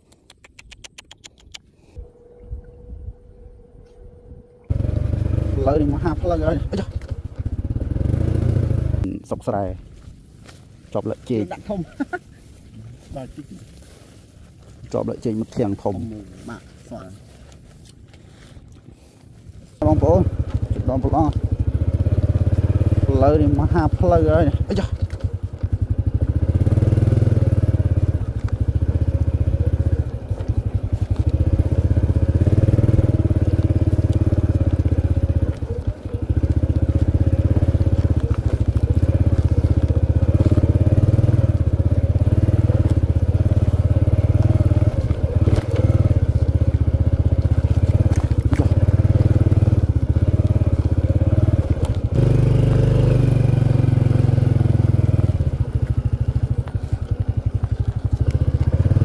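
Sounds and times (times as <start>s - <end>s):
motorcycle engine revving: 4.7s - 9.6s, 19.8s - 59.0s.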